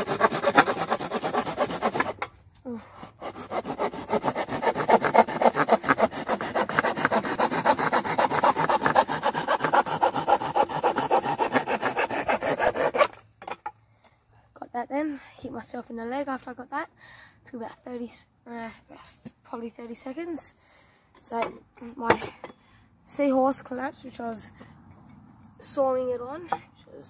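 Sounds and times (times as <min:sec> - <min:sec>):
hand saw cutting wood: 0:00.0 - 0:13.2.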